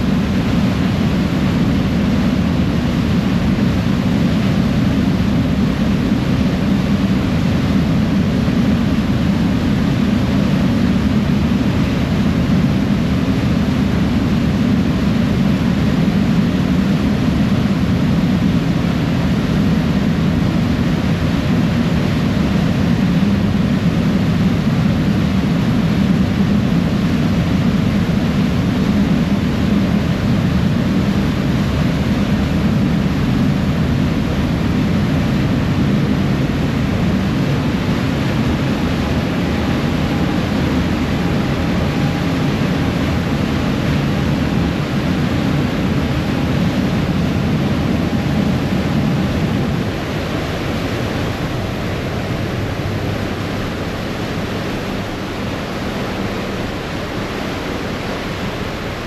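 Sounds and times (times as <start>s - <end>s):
ferry engine rumble: 29.7s - 59.0s.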